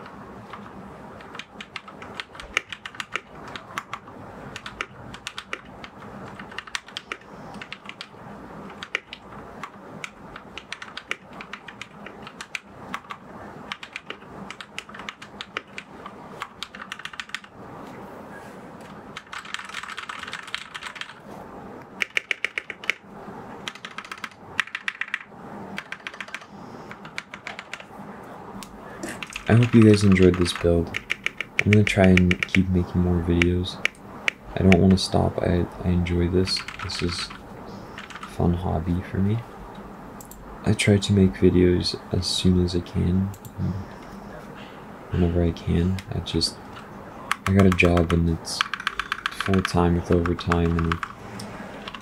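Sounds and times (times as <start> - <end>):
mechanical keyboard typing: 0.0 - 8.1, 8.7 - 17.5, 19.1 - 21.2, 22.0 - 23.0, 23.6 - 27.9, 29.0 - 35.1, 36.4 - 37.4, 38.0 - 38.4, 47.3 - 52.0.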